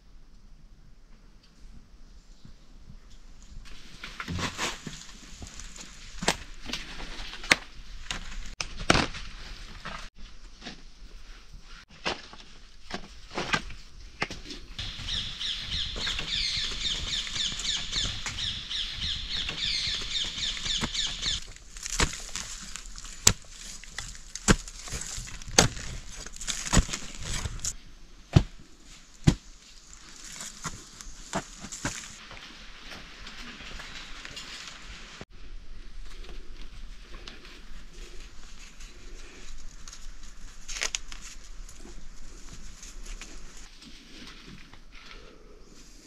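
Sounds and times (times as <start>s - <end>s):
dry leaves and sticks rustling: 3.5s - 45.9s
sharp cracks and knocks: 6.2s - 9.3s, 19.4s - 27.7s
bird singing high trill: 14.8s - 21.4s.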